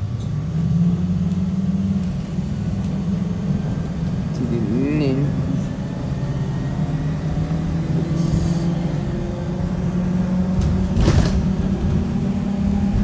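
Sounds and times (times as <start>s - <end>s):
bus engine and road drone: 0.0s - 13.0s.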